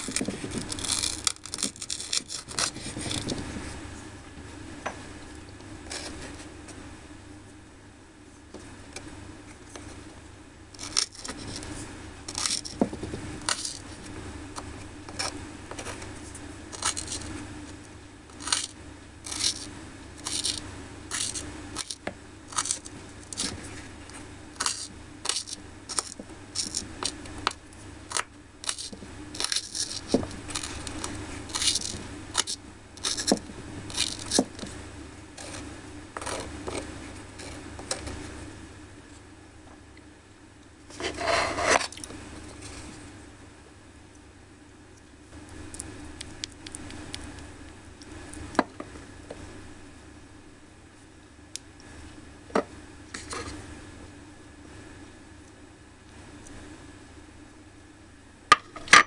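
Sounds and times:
knife scraping board: 0:00.0 - 0:03.5, 0:10.8 - 0:14.0, 0:15.1 - 0:16.1, 0:16.7 - 0:17.3, 0:18.3 - 0:23.8, 0:24.6 - 0:27.2, 0:28.1 - 0:34.7, 0:35.4 - 0:38.2, 0:40.9 - 0:42.0.

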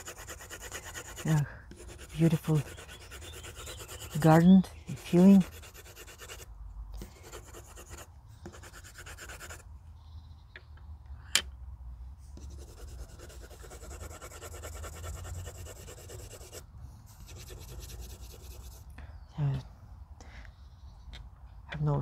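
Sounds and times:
colored pencil scratching on paper: 0:00.0 - 0:09.7, 0:12.4 - 0:18.8.

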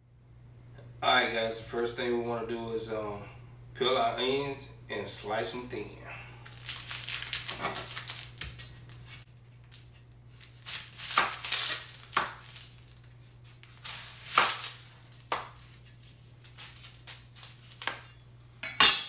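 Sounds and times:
crisp crackling and rustling: 0:06.4 - 0:17.9
knife peeling onion skin: 0:06.5 - 0:18.1.

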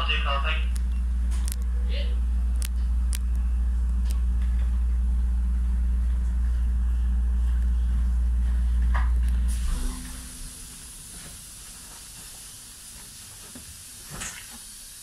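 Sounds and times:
train equipment low hum: 0:00.0 - 0:15.0
brief sharp sound: 0:09.5 - 0:11.0.

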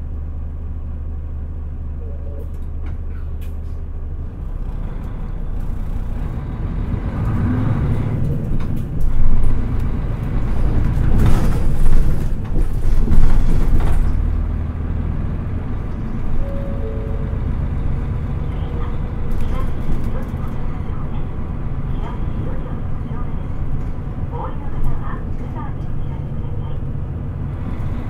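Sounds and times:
bus diesel engine: 0:00.0 - 0:28.0.

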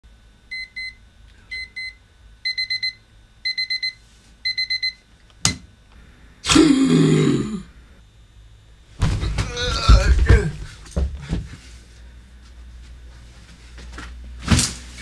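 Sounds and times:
digital alarm clock beeping: 0:01.6 - 0:05.0.

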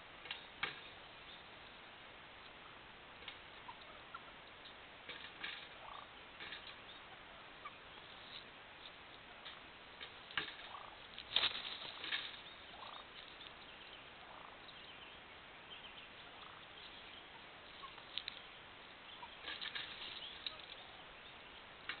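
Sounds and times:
turkey gobbling: 0:00.3 - 0:15.0, 0:15.7 - 0:22.0.

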